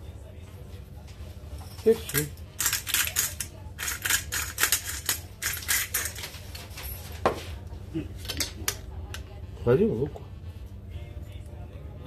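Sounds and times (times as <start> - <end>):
pepper grinder grinding: 2.0 - 6.3.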